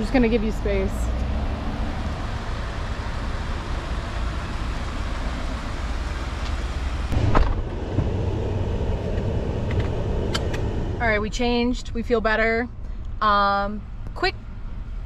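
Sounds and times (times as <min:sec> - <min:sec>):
parking lot noise: 0:00.0 - 0:15.0
car door shutting: 0:06.4 - 0:08.3.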